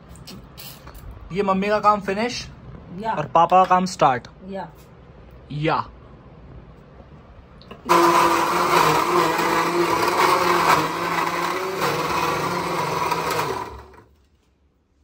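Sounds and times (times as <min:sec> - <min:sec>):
electric mixer grinder blending: 0:07.8 - 0:14.1.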